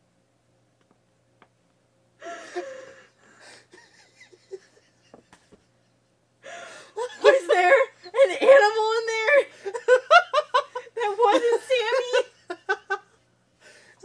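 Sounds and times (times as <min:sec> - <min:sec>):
wheezing breathless laugh: 0:02.2 - 0:05.7.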